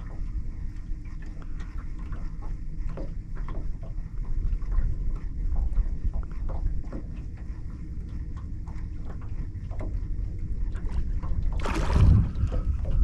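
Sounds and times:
wind and water rumble: 0:00.0 - 0:13.0
fish splashing: 0:11.5 - 0:13.0.

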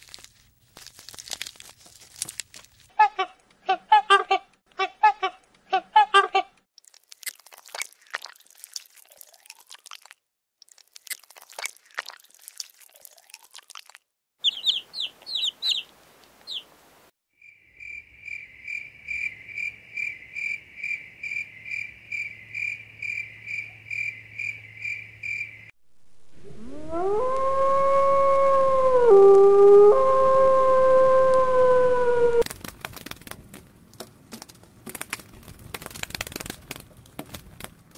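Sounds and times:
caterpillars chewing leaf: 0:00.0 - 0:02.9, 0:06.8 - 0:16.6
insect chirping rhythmically: 0:17.4 - 0:25.7
wolf howling: 0:26.4 - 0:32.4.

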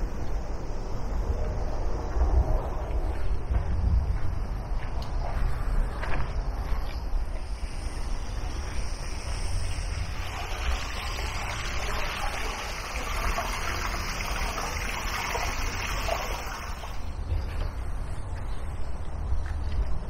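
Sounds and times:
steady low rumble: 0:00.0 - 0:12.2
water trickling and splashing: 0:08.4 - 0:17.4.

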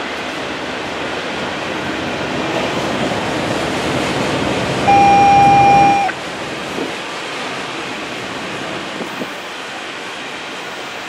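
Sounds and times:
train wheels rumbling on rail: 0:00.0 - 0:11.0
high-pitched tone: 0:04.9 - 0:06.2.

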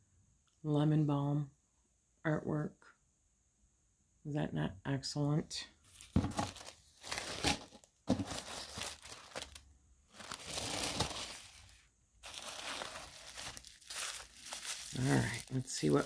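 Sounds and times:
paper rustling in cardboard box: 0:05.9 - 0:09.6, 0:10.2 - 0:16.0.

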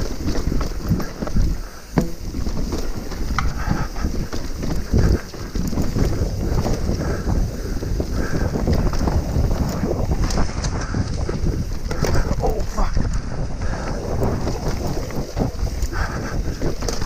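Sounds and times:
sharp knocks over bumps: 0:00.0 - 0:07.0
mountain bike rattling on trail: 0:00.0 - 0:17.0
wind buffeting microphone: 0:00.0 - 0:17.0.

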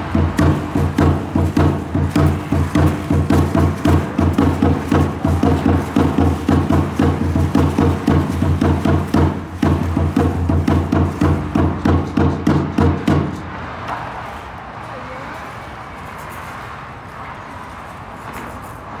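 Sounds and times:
drum beaten in steady rhythm: 0:00.0 - 0:13.4
outdoor background noise: 0:00.0 - 0:19.0
ankle rattles shaking: 0:00.1 - 0:13.4
low voices: 0:14.4 - 0:16.1.

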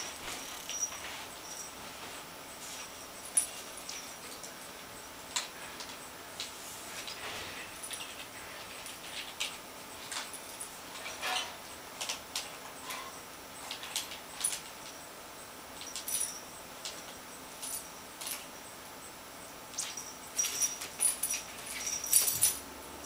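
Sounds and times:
jingle bell jingling: 0:00.0 - 0:01.9, 0:19.8 - 0:22.8.

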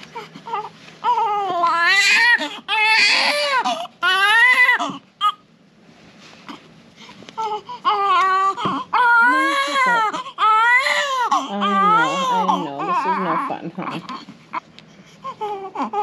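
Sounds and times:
baby whimpering: 0:00.1 - 0:05.4, 0:07.4 - 0:16.0
baby crying: 0:00.2 - 0:05.4, 0:07.4 - 0:14.6, 0:15.2 - 0:16.0.

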